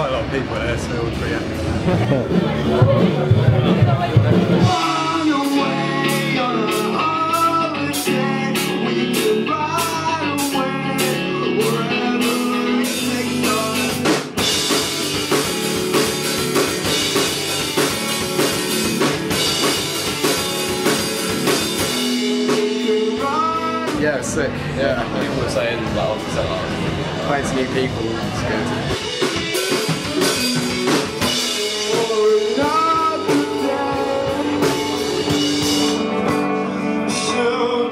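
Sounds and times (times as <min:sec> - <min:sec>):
live rock band playing: 0:00.0 - 0:37.9
person singing: 0:02.4 - 0:17.5, 0:21.5 - 0:25.2, 0:28.2 - 0:37.9.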